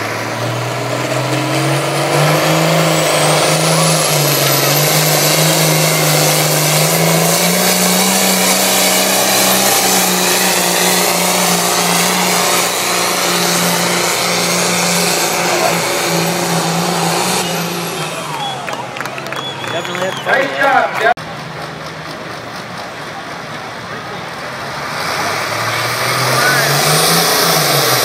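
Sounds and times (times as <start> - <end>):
diesel tractor engine under load: 0.0 - 28.0
steady high whistle: 17.0 - 20.7.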